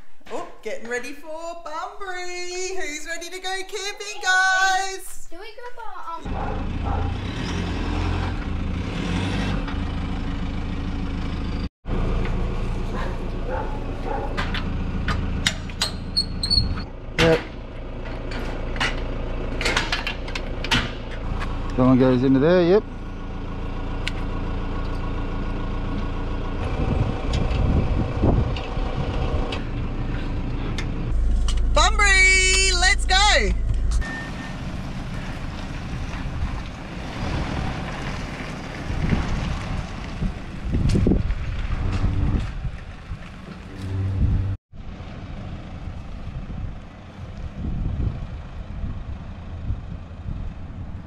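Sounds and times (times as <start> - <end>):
low engine hum: 6.3 - 51.0
metal hitch and chains clanking: 12.9 - 21.9
high squeak: 15.8 - 16.9
wind blowing on microphone: 26.6 - 29.6, 38.8 - 44.6, 46.2 - 51.0.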